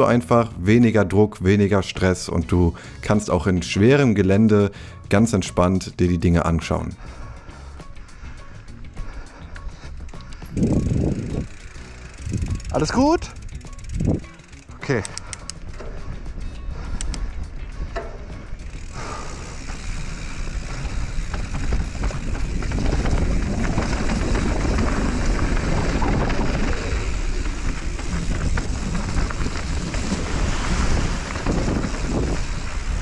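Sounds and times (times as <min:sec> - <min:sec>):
bike tyre noise on dirt: 0:07.0 - 0:33.0
mountain bike rattle: 0:07.0 - 0:33.0
wind buffeting microphone: 0:09.7 - 0:14.6, 0:15.4 - 0:33.0.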